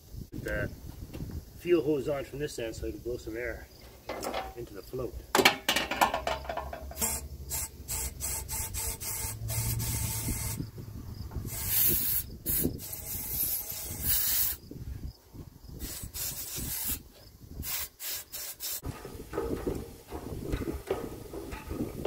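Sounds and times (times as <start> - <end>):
tool handling: 3.8 - 4.6, 5.3 - 7.1, 18.8 - 22.0
compressed air blow gun hissing: 6.9 - 10.7, 11.4 - 15.0, 15.7 - 21.4.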